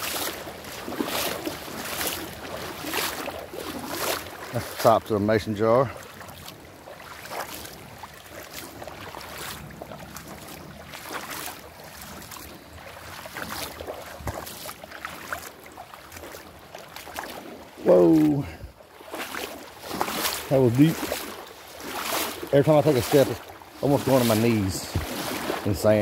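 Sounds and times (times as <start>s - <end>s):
wading steps splashing water: 0.0s - 26.0s
man exclaiming: 17.8s - 18.6s.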